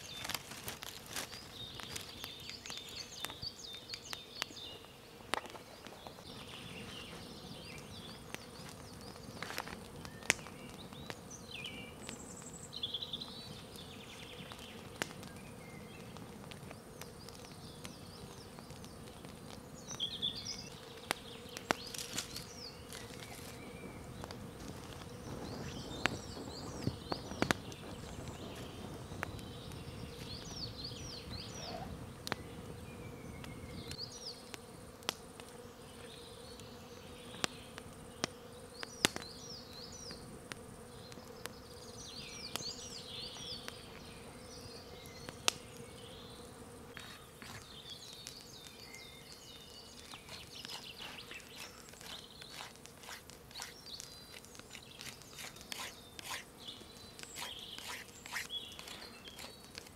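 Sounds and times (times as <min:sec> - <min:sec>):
campfire crackling and popping: 0:00.0 - 0:06.6, 0:07.6 - 0:35.6, 0:37.3 - 0:41.6, 0:42.2 - 0:44.2, 0:45.0 - 0:46.0, 0:46.9 - 0:59.9
songbirds warbling: 0:01.1 - 0:34.8, 0:35.6 - 0:59.9
knife carving wood: 0:46.9 - 0:47.7, 0:50.0 - 0:56.5, 0:57.2 - 0:59.9.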